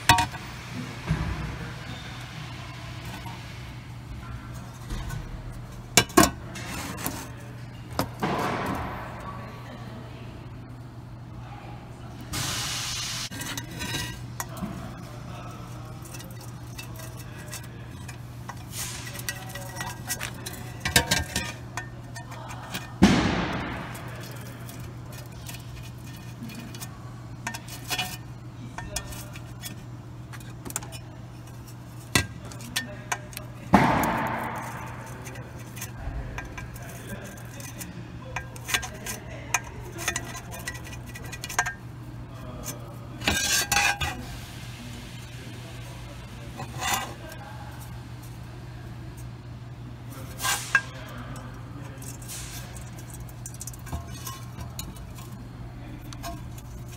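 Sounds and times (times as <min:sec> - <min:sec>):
brush tapping on metal: 0:13.4 - 0:44.4, 0:45.9 - 0:56.9
loud metallic clangs: 0:22.9 - 0:24.4.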